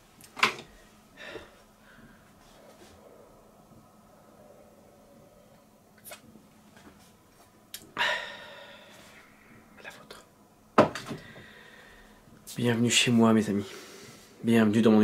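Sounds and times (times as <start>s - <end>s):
mug set down with a knock: 10.8s - 11.2s.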